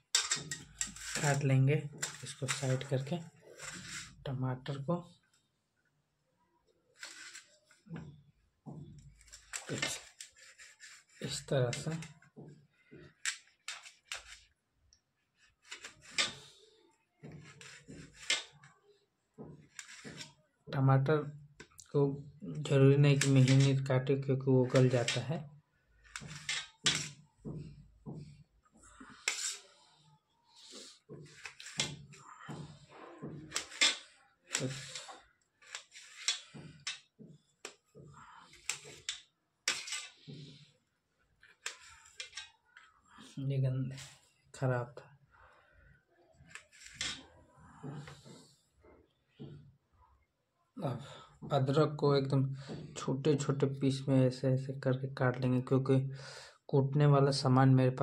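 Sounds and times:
knife tapping and scraping on metal: 0.1s - 2.9s, 17.2s - 18.6s, 26.0s - 28.3s, 31.1s - 40.7s, 41.6s - 42.5s
knife slicing tomato: 0.7s - 4.2s, 7.0s - 7.4s, 15.6s - 16.6s, 17.2s - 18.7s, 19.4s - 20.3s, 30.6s - 37.1s.

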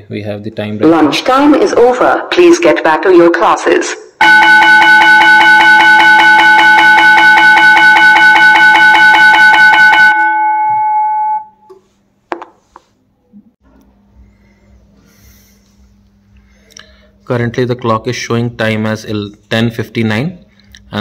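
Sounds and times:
school bell ringing over speakers: 4.2s - 11.7s.

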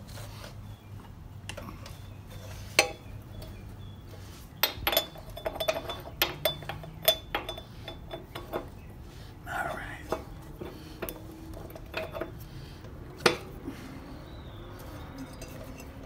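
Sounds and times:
metal clinks of axle spacer: 4.6s - 8.8s, 10.1s - 12.4s, 14.8s - 16.0s.

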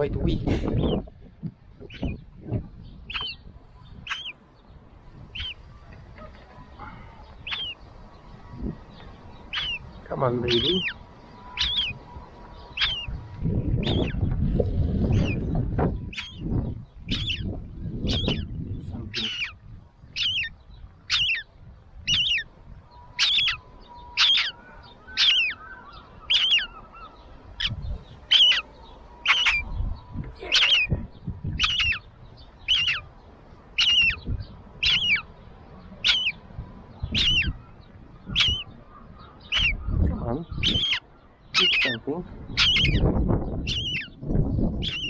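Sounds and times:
seagull chick peeping: 3.0s - 4.4s, 5.3s - 6.5s, 7.3s - 7.8s, 9.4s - 9.8s, 10.5s - 12.0s, 12.7s - 14.2s, 16.0s - 18.5s, 19.1s - 33.1s, 33.8s - 35.3s, 36.0s - 36.4s, 37.0s - 45.0s.

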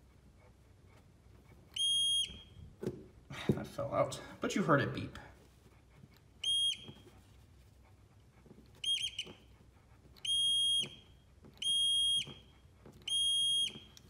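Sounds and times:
multimeter continuity beeps: 1.7s - 2.7s, 6.4s - 7.0s, 8.8s - 9.5s, 10.2s - 14.0s.

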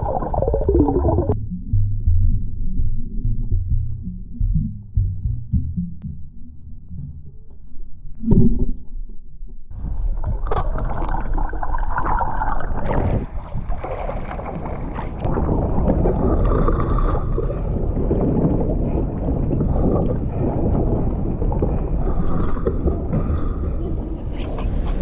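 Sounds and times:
water splashing against kayak: 9.8s - 25.0s.

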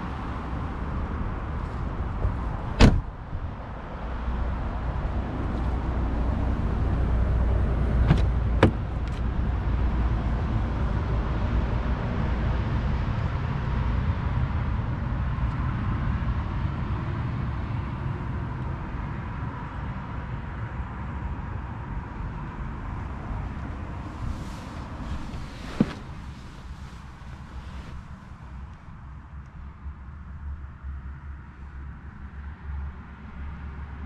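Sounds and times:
car door latch clicks: 2.8s - 3.1s, 8.0s - 9.2s.

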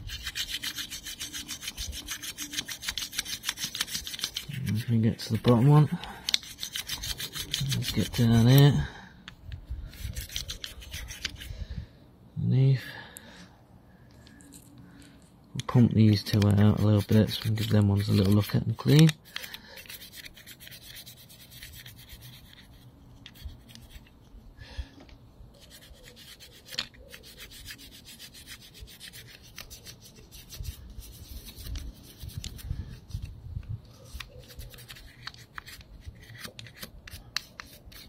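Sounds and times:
small clicks of parts and tools: 26.7s - 27.0s.

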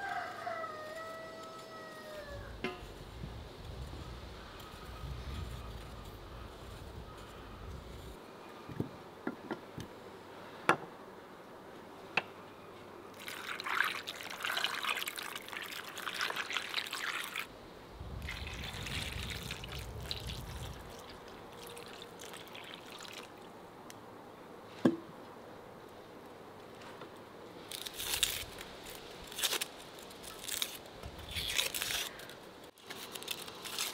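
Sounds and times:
water poured and splashing: 13.2s - 17.5s, 18.1s - 23.5s.

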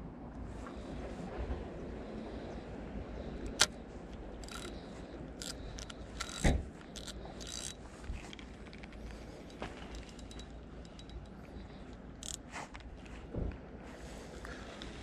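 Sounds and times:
fishing reel click: 3.4s - 3.7s, 4.4s - 4.8s, 5.4s - 7.8s, 12.2s - 12.4s
fishing reel scraping and whirring: 3.5s - 3.7s, 4.4s - 4.8s, 5.4s - 7.8s, 12.2s - 12.4s.

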